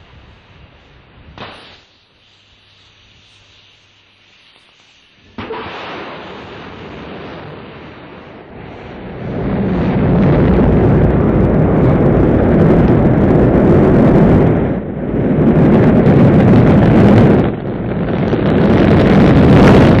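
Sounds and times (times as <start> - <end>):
rocket engine rumble: 5.2 - 20.0.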